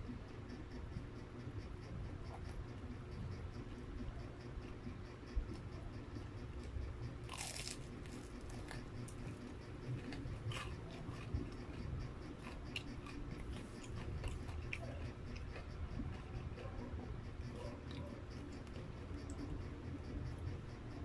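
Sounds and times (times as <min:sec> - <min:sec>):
chewing with crunches: 0:00.0 - 0:21.0
crunchy bite into fried chicken: 0:07.2 - 0:16.9.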